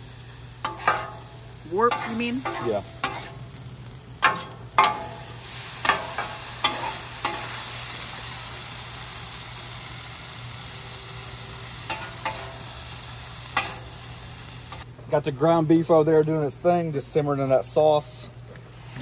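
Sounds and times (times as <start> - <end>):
meat sizzling on griddle: 0.0 - 14.9, 18.7 - 19.0
metal spatula scraping griddle: 0.6 - 3.5, 4.2 - 7.7, 11.9 - 12.7, 13.5 - 14.0.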